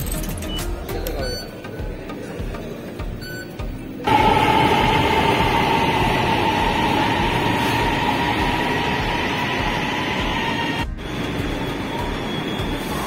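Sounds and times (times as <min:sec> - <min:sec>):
metro train rumble: 0:04.0 - 0:13.0
high electric whine: 0:04.1 - 0:13.0.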